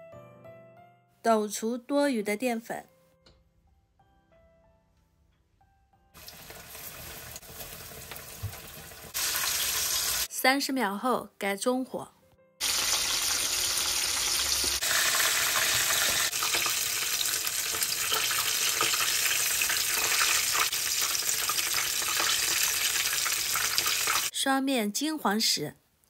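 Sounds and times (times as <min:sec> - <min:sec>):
fish deep-frying in oil: 0:06.2 - 0:10.3, 0:12.6 - 0:24.3.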